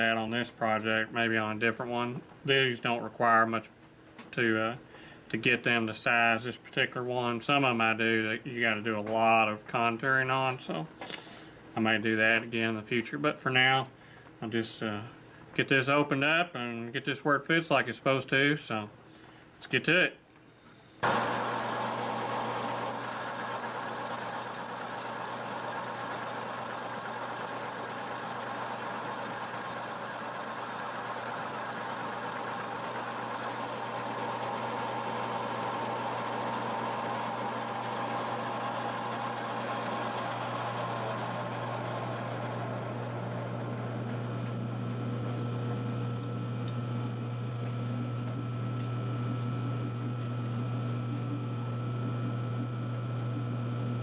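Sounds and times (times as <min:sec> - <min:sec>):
hissing metal cut: 0:21.0 - 0:34.6
lathe motor hum: 0:21.0 - 0:54.0.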